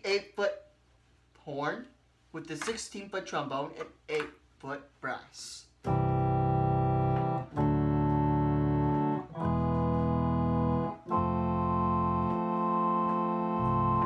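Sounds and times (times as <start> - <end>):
electronic organ chords: 5.8 - 14.0.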